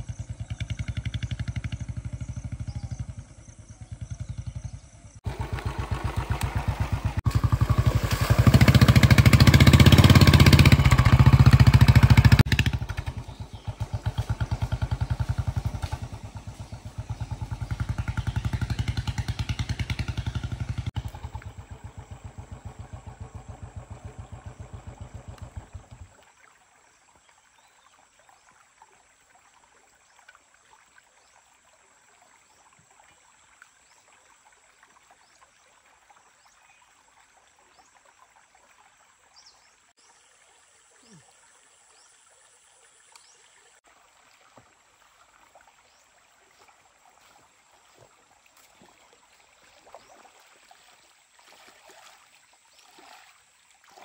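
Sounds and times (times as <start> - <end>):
engine running with fast pulse: 0.0 - 26.1.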